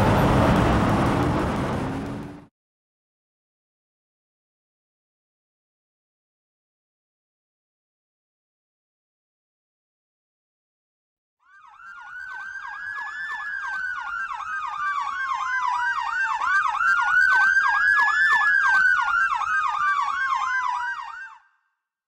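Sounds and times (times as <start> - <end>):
electronic siren yelp: 11.4 - 21.6.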